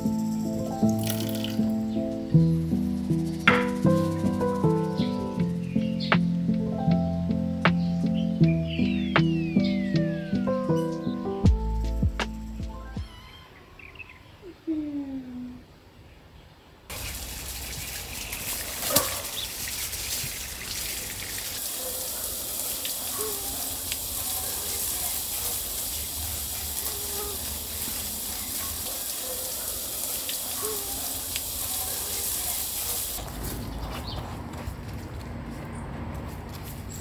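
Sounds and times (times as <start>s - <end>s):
bird chirps: 0.0s - 6.3s, 7.7s - 11.6s, 12.3s - 14.6s
hose spray nozzle hissing: 16.9s - 33.2s.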